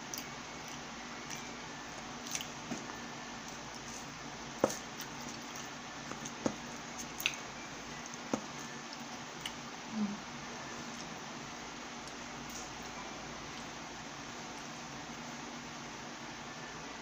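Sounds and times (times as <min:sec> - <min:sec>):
wet chewing: 0:02.2 - 0:03.8, 0:04.7 - 0:09.6.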